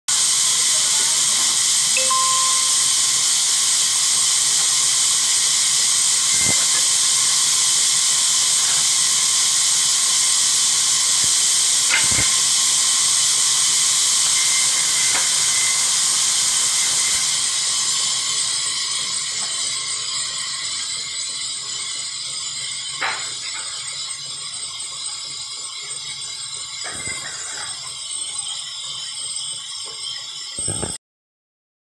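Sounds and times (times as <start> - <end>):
band saw cutting wood: 2.4 - 25.1.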